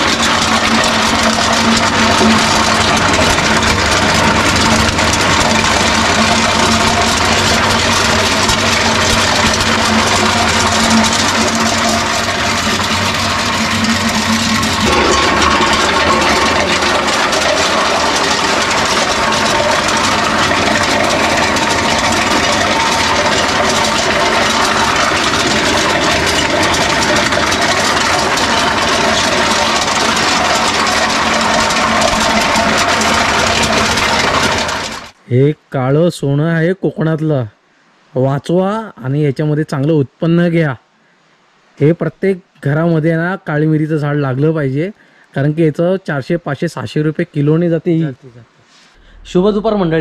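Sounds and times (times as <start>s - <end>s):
dehusking machine running: 0.0s - 35.2s, 48.9s - 50.0s.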